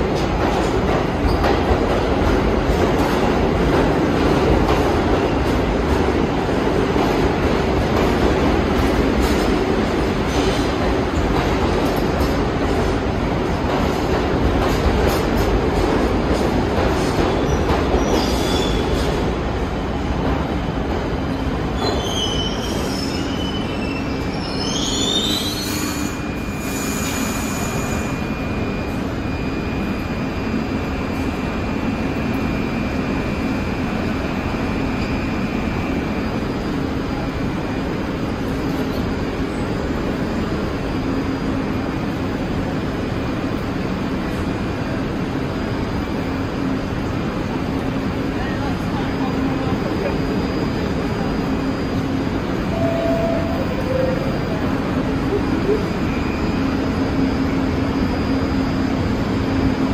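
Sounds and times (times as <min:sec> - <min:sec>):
subway train running: 0:00.0 - 0:59.9
train wheels squealing: 0:17.3 - 0:19.2, 0:21.8 - 0:30.2
high whine: 0:50.4 - 0:59.9.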